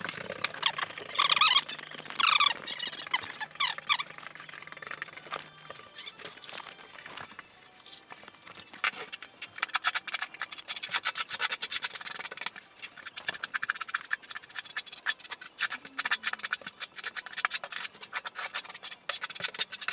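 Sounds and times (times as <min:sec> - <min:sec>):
trowel scraping mortar: 0:08.6 - 0:19.9.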